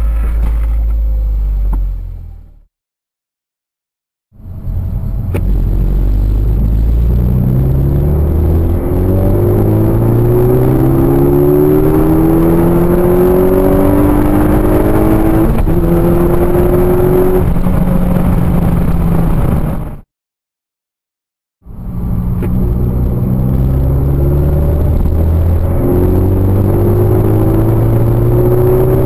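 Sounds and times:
car engine accelerating hard: 4.4s - 19.9s, 21.8s - 29.0s.

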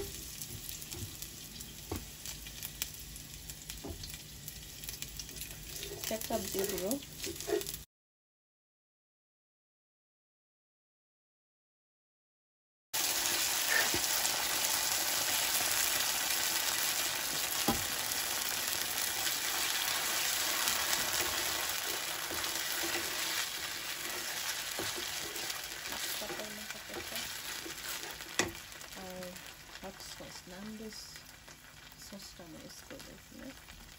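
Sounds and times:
oil sizzling in a frying pan: 0.0s - 7.9s, 13.0s - 33.9s
spatula tapping pan: 27.0s - 28.6s.

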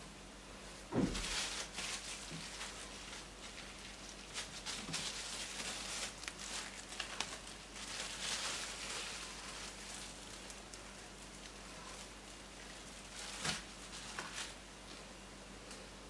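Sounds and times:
plastic sheet rustling: 0.8s - 15.0s.

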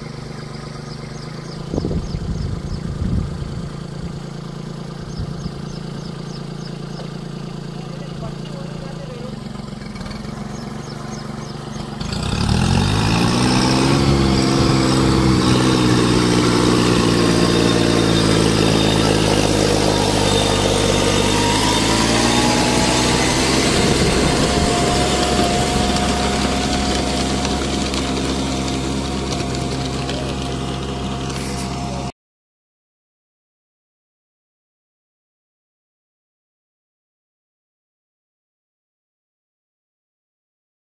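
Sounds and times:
tractor diesel engine running: 0.0s - 32.1s.

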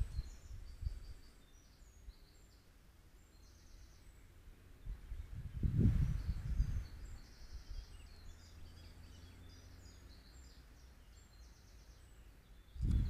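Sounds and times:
wind buffeting microphone: 0.0s - 1.3s, 4.8s - 8.8s, 12.7s - 13.0s
songbirds chirping: 0.0s - 13.0s.

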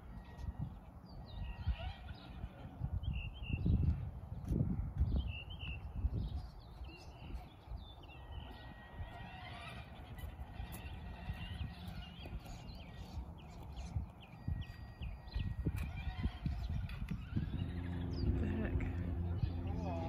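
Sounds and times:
small birds chirping: 0.0s - 20.0s
low rumble: 16.4s - 20.0s.

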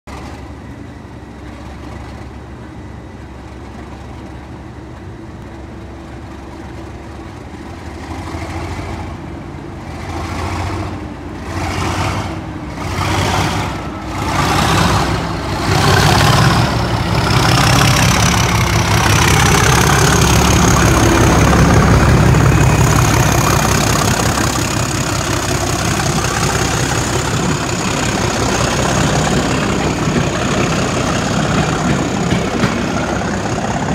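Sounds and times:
diesel locomotive engine: 0.0s - 33.9s.

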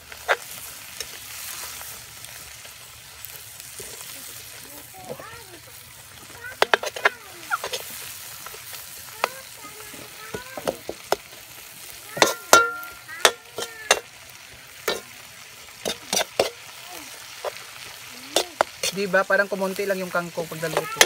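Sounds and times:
vegetables sizzling in a wok: 0.0s - 21.0s
metal ladle scraping and clanking: 6.6s - 7.9s, 12.2s - 14.1s, 14.8s - 15.1s, 15.8s - 16.6s, 18.4s - 19.1s.

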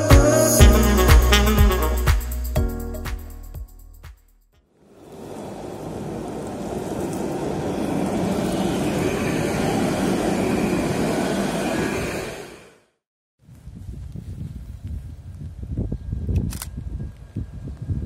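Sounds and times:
tram rolling on wet rails: 4.8s - 12.8s.

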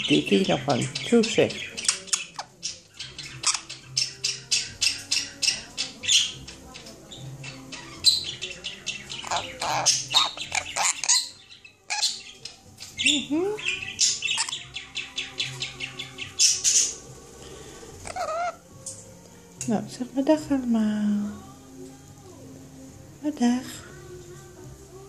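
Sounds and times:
parrot chirping and squawking: 0.0s - 17.1s, 17.7s - 18.7s.

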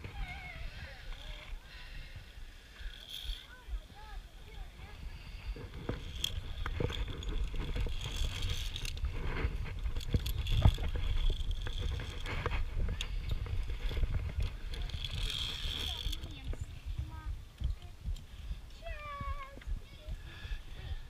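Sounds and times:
camera jostling rumble: 3.1s - 20.2s
metal trolley clicking on cable: 5.7s - 16.6s.

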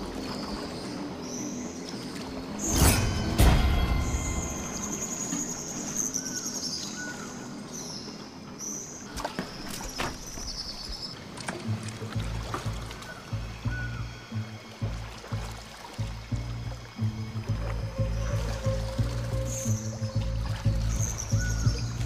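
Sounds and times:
insects chirring: 2.4s - 9.0s
deep hit: 2.7s - 5.6s.

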